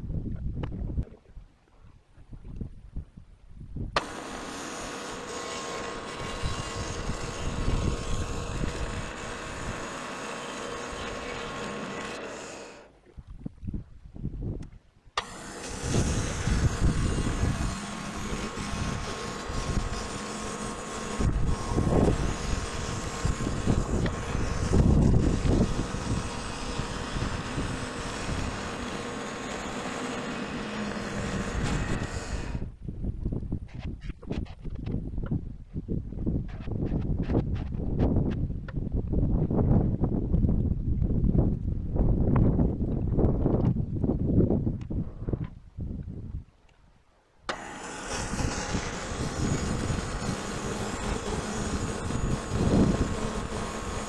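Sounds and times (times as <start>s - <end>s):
bandsaw cutting log: 4.0s - 12.9s, 15.2s - 32.7s, 47.5s - 54.0s.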